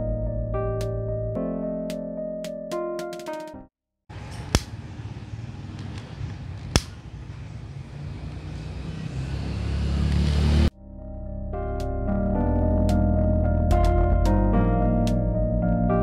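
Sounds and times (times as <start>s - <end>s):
lighter clicks: 6.7s - 7.0s.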